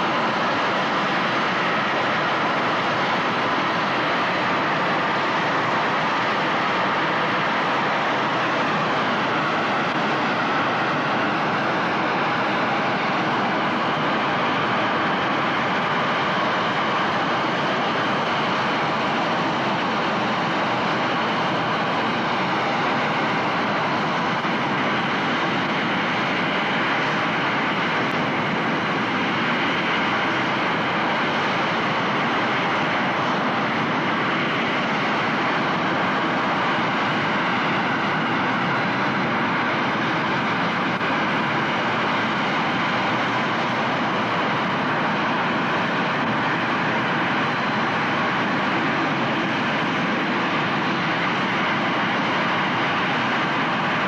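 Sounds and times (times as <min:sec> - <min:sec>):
jet engines rushing: 0:00.0 - 0:54.0.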